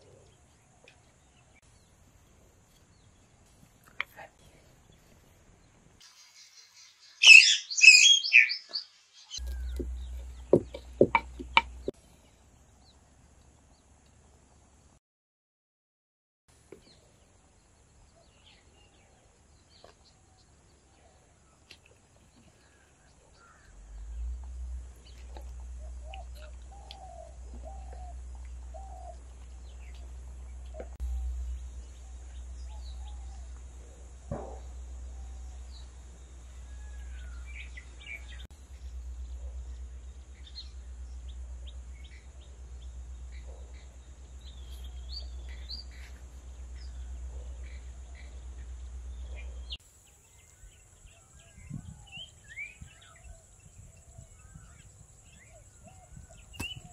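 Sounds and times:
small birds chirping: 0:00.0 - 0:14.8, 0:16.7 - 0:56.9
steady low rumble: 0:09.4 - 0:13.4, 0:23.3 - 0:36.7, 0:37.3 - 0:49.8.

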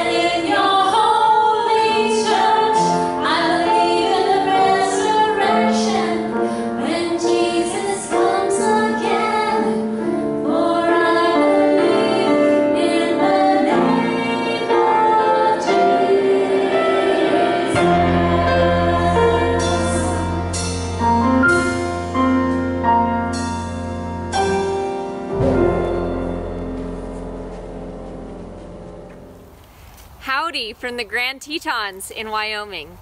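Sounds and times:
women singing worship song: 0:00.0 - 0:20.6
musical accompaniment: 0:00.0 - 0:29.5.

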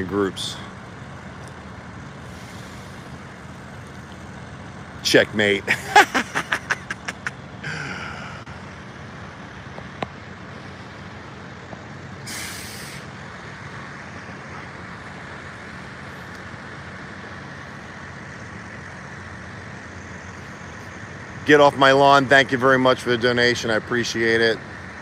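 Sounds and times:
idling buses and traffic rumble: 0:00.0 - 0:25.0
bus air brakes hissing: 0:02.2 - 0:03.3, 0:12.2 - 0:13.2.

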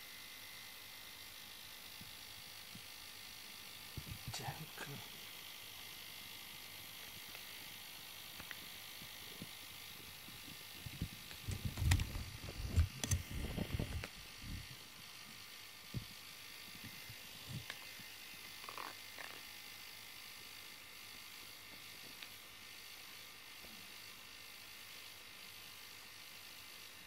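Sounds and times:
fur rubbing against microphone: 0:10.8 - 0:14.7.

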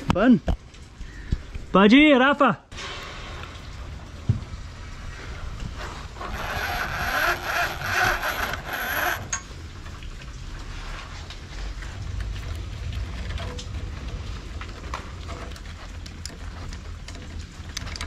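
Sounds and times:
wire rope fittings clicking: 0:05.6 - 0:10.4, 0:11.7 - 0:18.0
wire rope scraping through pulley: 0:05.8 - 0:09.6
low rumble: 0:11.7 - 0:17.9.

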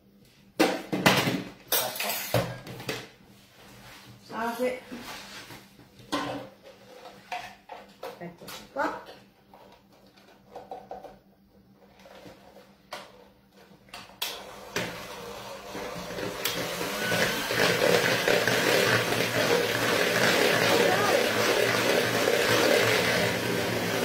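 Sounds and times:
electric hand mixer beating: 0:14.4 - 0:24.0.

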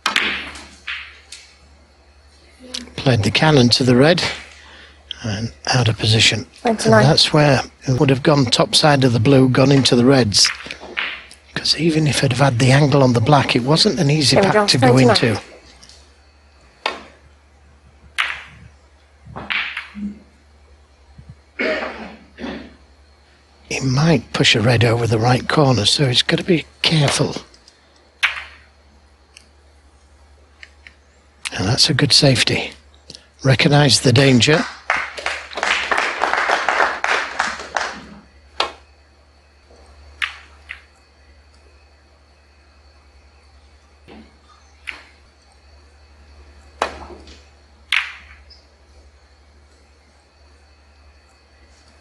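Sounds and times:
snooker balls colliding: 0:00.0 - 0:01.6, 0:09.6 - 0:11.5, 0:16.8 - 0:17.2, 0:18.1 - 0:20.3, 0:28.2 - 0:28.7, 0:37.0 - 0:38.8, 0:40.2 - 0:40.9, 0:46.8 - 0:48.6
audience clapping: 0:34.5 - 0:38.1
cue striking ball click: 0:47.9 - 0:48.5.

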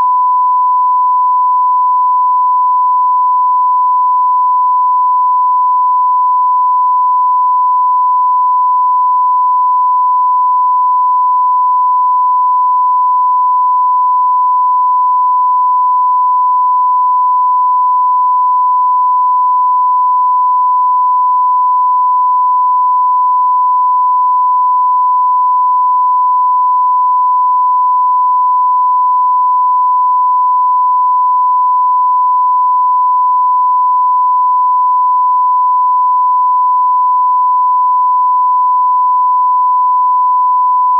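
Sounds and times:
sine wave test tone: 0:00.0 - 0:40.9.

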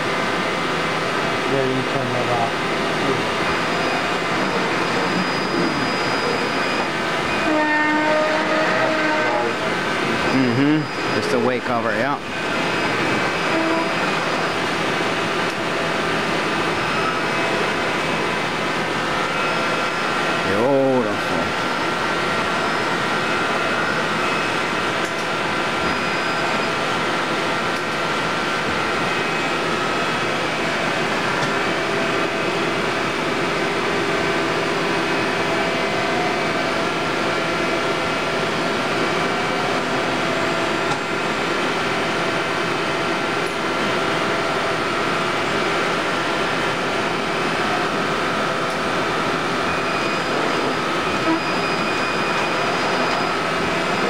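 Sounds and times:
machinery whirring hum: 0:00.0 - 0:54.0.

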